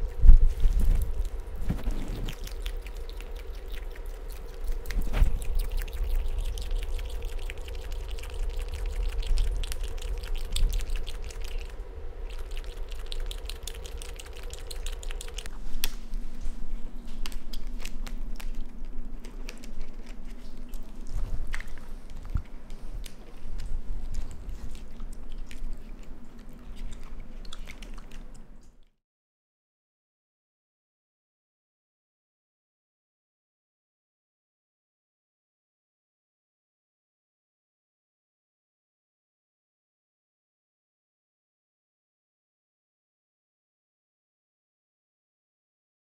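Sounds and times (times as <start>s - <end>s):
raccoon chewing: 0.0s - 28.9s
steady low hum: 0.0s - 28.9s.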